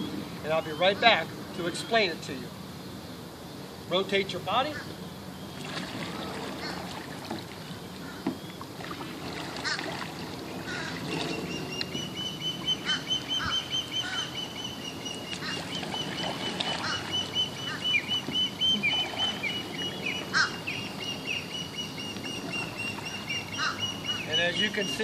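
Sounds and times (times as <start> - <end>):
kayak paddle in water: 4.8 - 25.0
bird high pulsing trill: 10.4 - 25.0
bird short downward chirps: 11.2 - 25.0.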